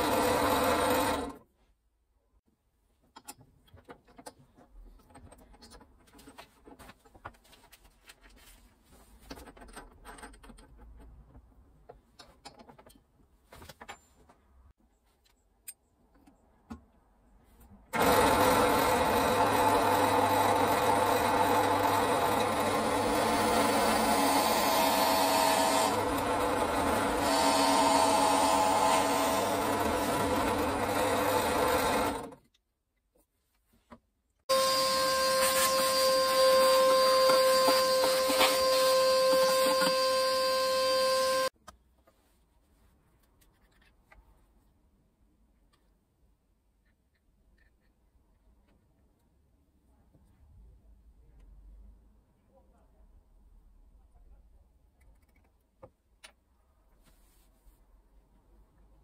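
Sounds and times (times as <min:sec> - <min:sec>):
drill press boring into wood: 0:00.0 - 0:01.4, 0:18.0 - 0:32.3, 0:34.5 - 0:41.5.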